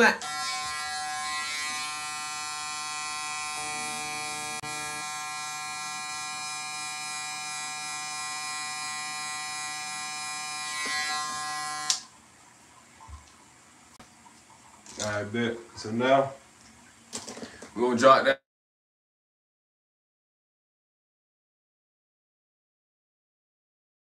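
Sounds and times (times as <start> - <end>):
hair clippers buzzing: 0.0 - 12.1.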